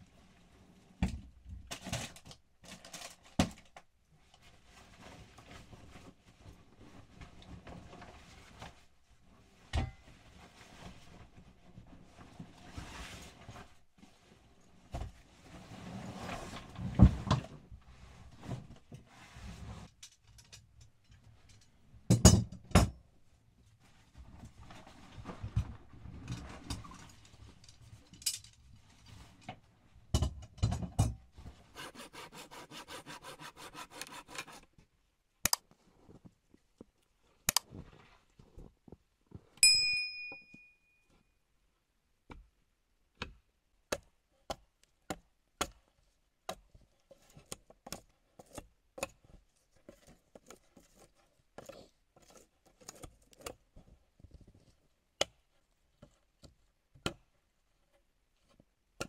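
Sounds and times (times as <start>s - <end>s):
sharp knocks and scrapes: 31.4s - 34.7s, 46.5s - 54.8s
rasping strokes on wood: 31.8s - 34.6s
sharp metallic ding: 39.6s - 41.0s.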